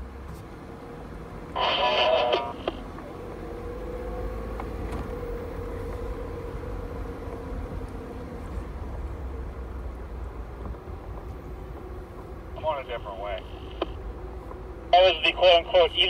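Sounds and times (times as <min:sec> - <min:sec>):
vehicle engine and road rumble: 0:00.0 - 0:16.0.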